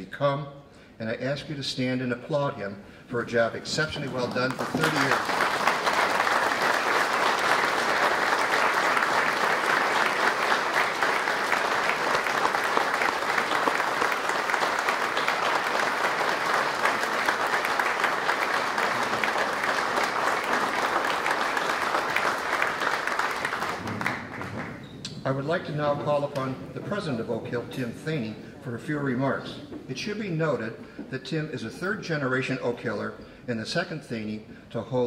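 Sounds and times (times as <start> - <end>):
audience applauding: 3.8 - 24.9.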